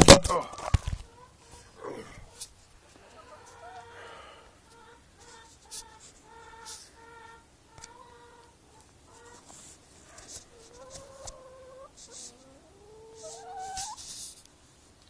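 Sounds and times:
hens calling: 0.2s - 14.0s
scratchy rustles: 9.1s - 12.5s, 13.1s - 14.5s.

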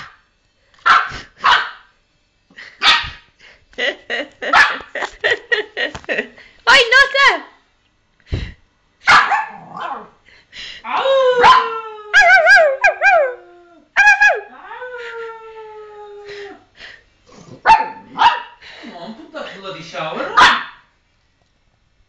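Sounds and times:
puppy howling: 10.9s - 16.6s.

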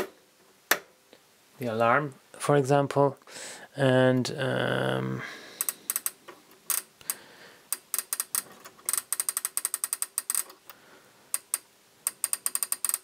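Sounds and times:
clockwork ratcheting clicks: 5.6s - 6.9s, 7.7s - 10.6s, 11.3s - 13.0s.

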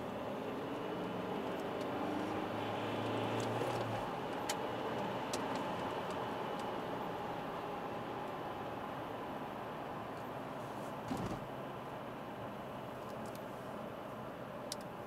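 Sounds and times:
car engine hum from cabin: 0.0s - 15.0s
tyre and road noise: 10.5s - 11.8s.

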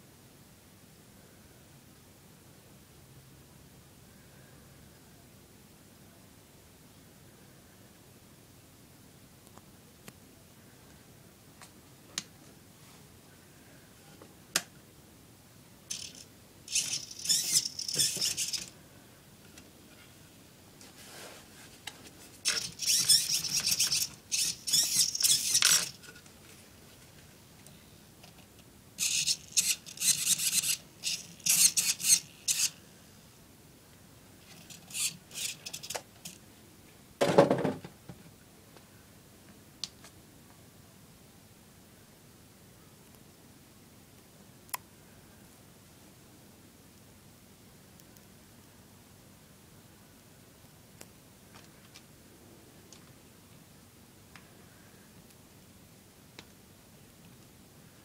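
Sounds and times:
handling rubbing and rattling: 15.9s - 18.7s, 20.8s - 27.2s, 29.0s - 32.8s.

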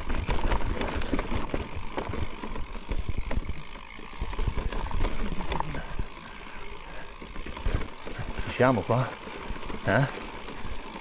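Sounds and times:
bike knocking and rattling: 0.0s - 11.0s.

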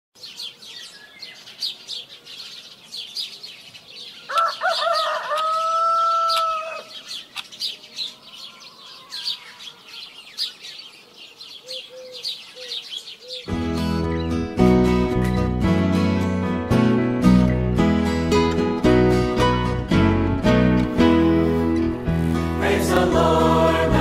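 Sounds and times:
small birds chirping: 0.2s - 14.6s
rooster crowing: 4.3s - 7.0s, 8.1s - 10.0s.

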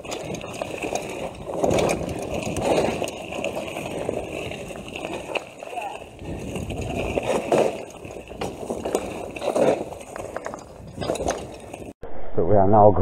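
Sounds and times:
bike tyres sloshing through mud: 0.0s - 10.4s
bike rattling over ground: 0.0s - 12.0s.

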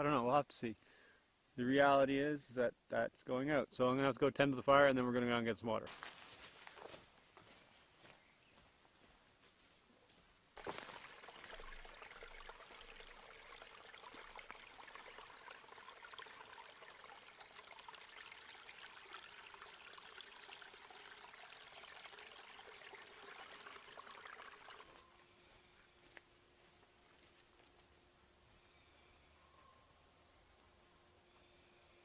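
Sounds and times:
creek trickling over stones: 10.6s - 25.1s.

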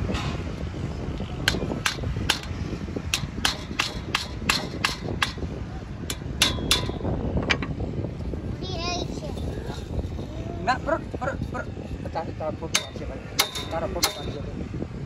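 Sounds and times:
hammer tapping metal saw blade: 1.4s - 5.5s, 6.1s - 7.7s, 12.7s - 14.5s.

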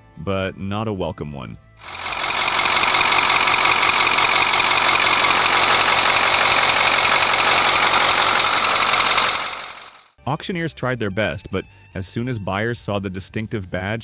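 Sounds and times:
diesel engine idling: 1.8s - 10.1s.

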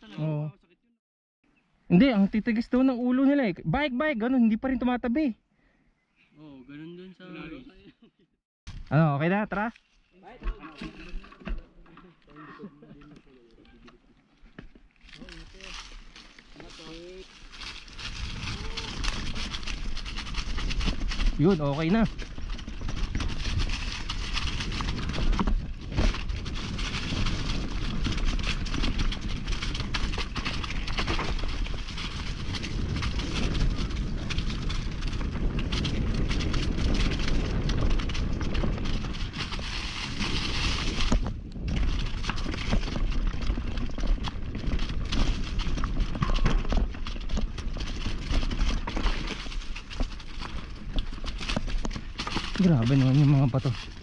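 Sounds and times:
mountain bike rattling over stones: 10.2s - 12.2s, 12.9s - 54.0s.

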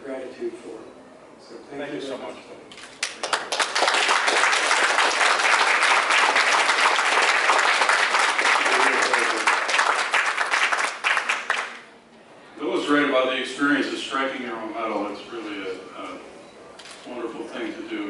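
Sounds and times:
audience applauding: 3.0s - 11.9s.

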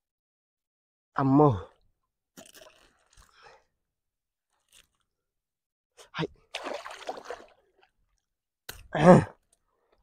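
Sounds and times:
man grunting: 9.0s - 9.4s.

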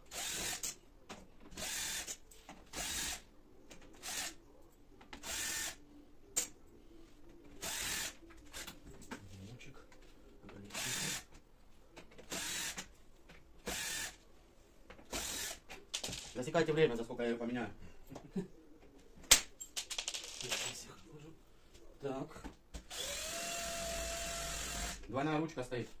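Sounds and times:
cordless drill bursts: 0.1s - 0.7s, 1.6s - 2.1s, 2.7s - 3.2s, 5.2s - 5.8s, 7.6s - 8.2s, 10.7s - 11.2s, 12.3s - 12.8s, 13.7s - 14.2s, 15.1s - 15.6s, 22.9s - 25.0s.

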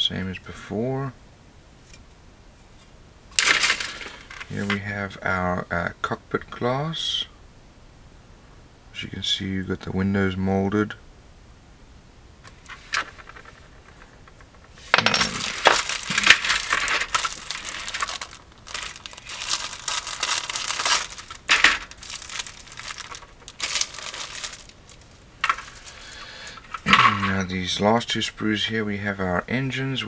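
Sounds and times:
plastic bag crinkling: 3.4s - 4.8s, 12.5s - 27.5s.

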